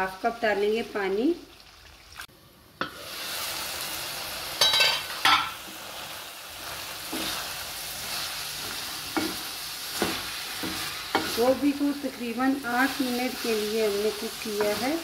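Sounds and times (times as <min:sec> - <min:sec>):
vegetables hissing in a pan: 0:00.0 - 0:15.0
wooden spoon scraping a pan: 0:12.8 - 0:15.0.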